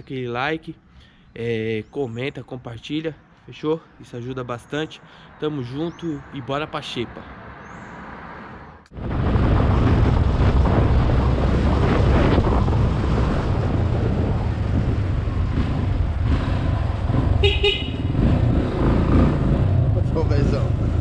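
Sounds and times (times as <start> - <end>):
wind rumble on microphone: 8.9 - 20.0
motorcycle engine running: 14.7 - 19.4
motorcycle horn toot: 17.4 - 18.2.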